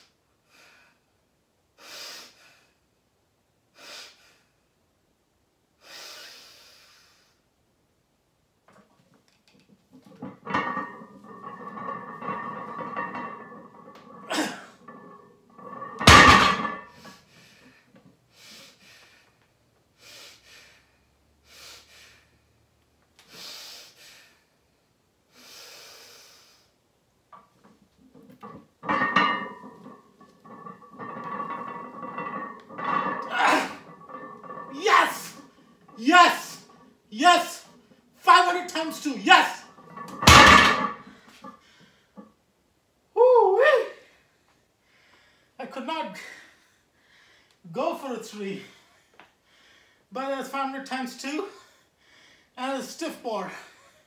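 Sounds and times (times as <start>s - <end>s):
weight plates thudding on floor: 10.1s - 17.1s, 28.2s - 36.8s, 39.6s - 41.5s
lifter straining groan: 32.4s - 36.7s.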